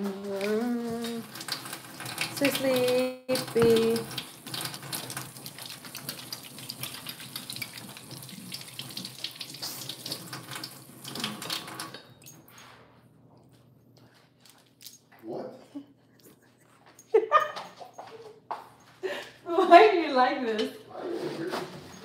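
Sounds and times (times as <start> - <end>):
water splashing into sink: 0.0 - 12.5
kitchen tap running: 0.0 - 12.6.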